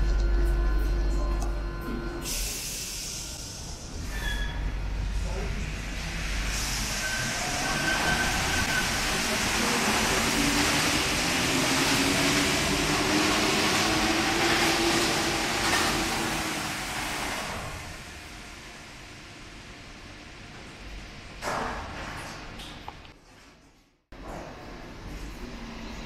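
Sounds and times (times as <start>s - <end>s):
train passing with loud rush: 4.7s - 20.4s.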